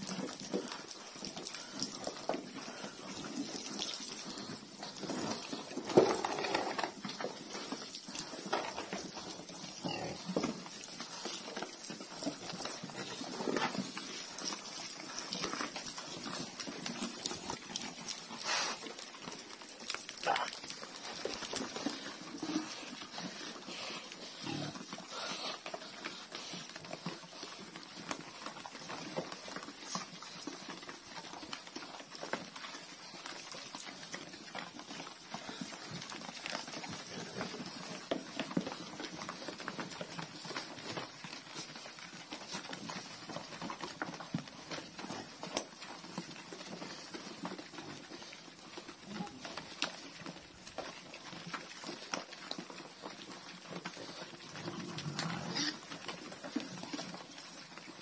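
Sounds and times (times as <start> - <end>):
pigs chomping and slurping: 0.0 - 58.0.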